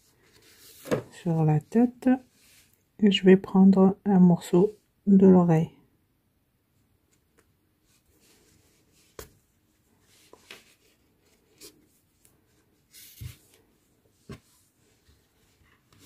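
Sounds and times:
faint rustling of hands: 2.2 - 2.9, 7.0 - 16.0.

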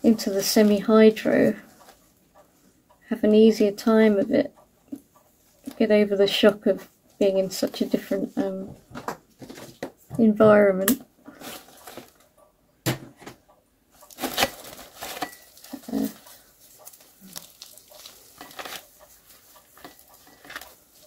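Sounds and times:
hands crumbling potting soil: 14.1 - 21.0.

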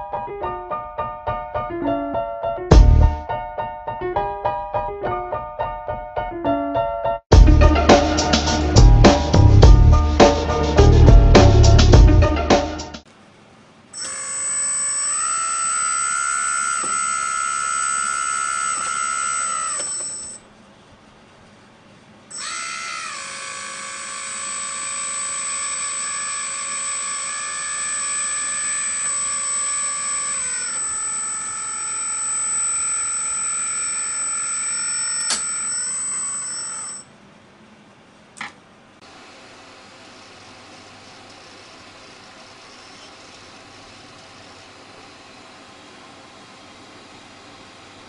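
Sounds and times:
hydraulic pump whining: 14.0 - 20.4, 22.3 - 37.0.

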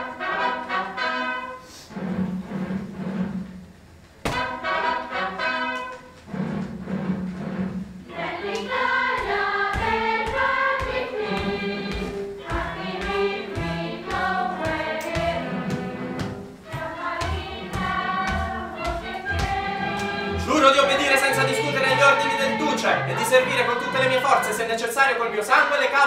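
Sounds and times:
choir singing: 0.0 - 1.4, 8.0 - 25.3
brass band playing march: 0.0 - 2.1, 4.4 - 6.2, 13.6 - 24.7.

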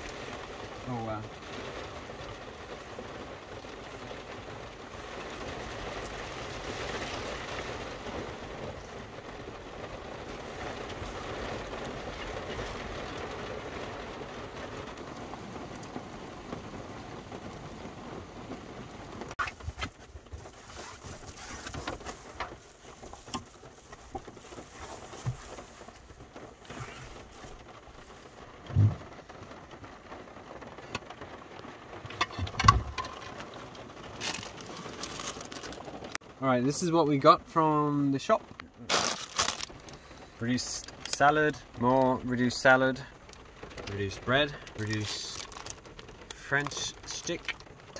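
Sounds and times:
heavy rain on vehicle roof: 0.0 - 47.9
clicks and knocks of handling: 32.0 - 33.6.

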